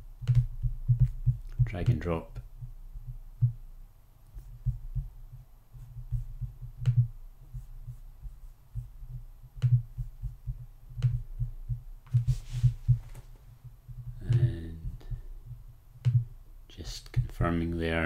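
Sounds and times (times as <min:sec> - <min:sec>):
low irregular thumping: 0:00.0 - 0:17.6
computer mouse clicks: 0:00.2 - 0:01.6, 0:06.8 - 0:07.0
short rustle: 0:12.1 - 0:13.5.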